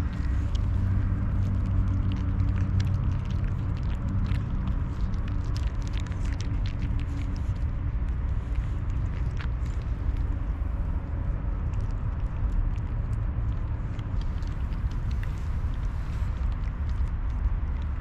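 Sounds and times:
cats crunching dry kibble: 0.0 - 18.0
steady low rumble: 0.0 - 18.0.

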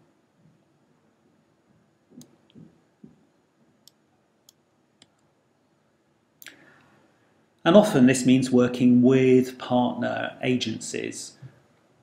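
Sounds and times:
faint clicks and taps: 1.7 - 5.4.

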